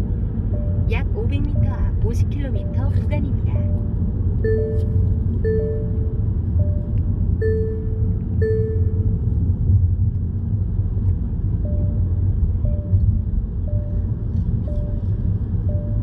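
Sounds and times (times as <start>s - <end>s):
car road and engine rumble: 0.0s - 16.0s
short electronic beeps: 3.6s - 9.1s, 11.6s - 16.0s.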